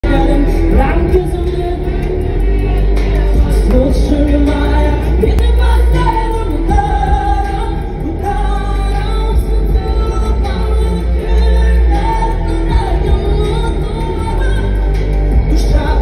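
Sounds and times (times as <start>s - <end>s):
pop backing track with heavy bass: 0.0s - 16.0s
woman singing into a microphone: 0.0s - 16.0s.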